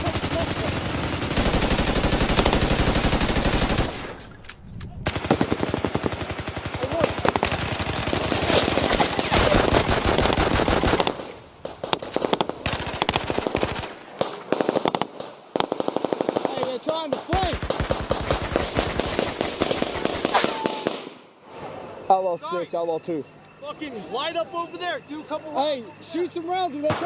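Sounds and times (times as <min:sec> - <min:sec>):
automatic gunfire bursts: 0:00.0 - 0:04.1, 0:05.0 - 0:21.0.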